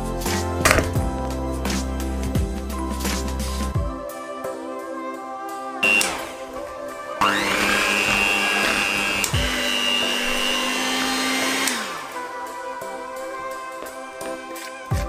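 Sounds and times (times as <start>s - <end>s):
background music: 0.0s - 15.0s
electric hand mixer whining: 5.8s - 12.9s.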